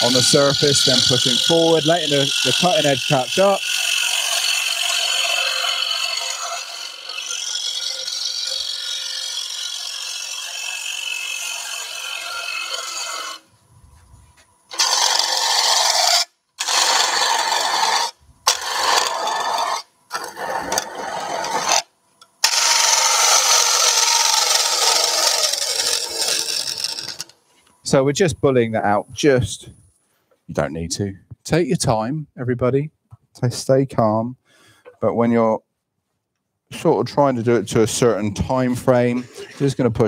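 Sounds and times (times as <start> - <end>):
gouge scraping wooden bowl on lathe: 0.0 - 10.6, 11.6 - 13.4, 14.8 - 21.8, 22.5 - 27.4.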